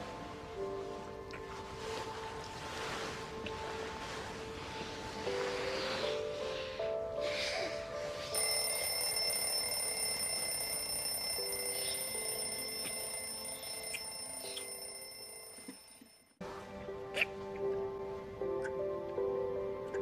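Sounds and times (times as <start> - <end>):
soft film score music: 0.0 - 20.0
high-pitched ringing tone: 8.4 - 16.4.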